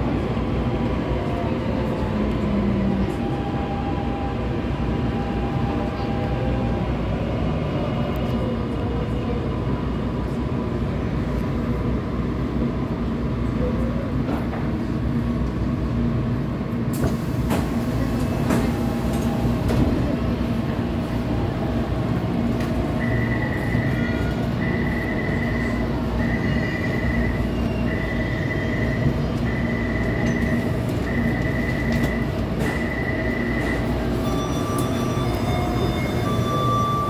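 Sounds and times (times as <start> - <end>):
train running hum and wheel noise: 0.0 - 37.0
door warning chime beeps: 24.6 - 37.0.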